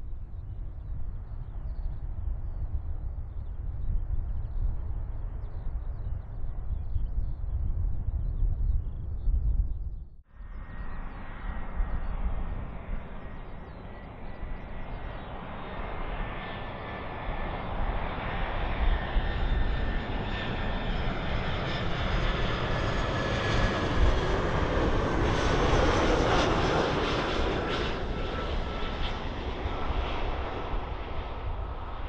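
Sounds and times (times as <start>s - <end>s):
airliner engines rushing: 10.3s - 32.0s.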